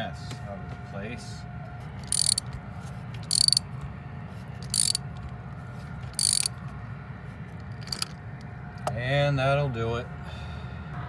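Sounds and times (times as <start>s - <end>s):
ratchet wrench clicking: 2.0s - 2.5s, 3.2s - 3.6s, 4.6s - 5.0s, 6.1s - 6.5s, 7.6s - 8.2s.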